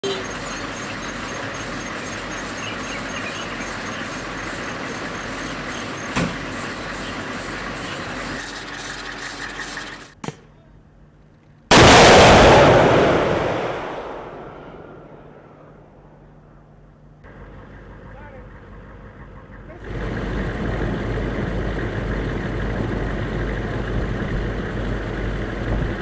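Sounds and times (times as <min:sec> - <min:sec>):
vehicle engine running: 0:00.0 - 0:10.2, 0:15.0 - 0:26.0
missile launch blast: 0:11.7 - 0:15.6.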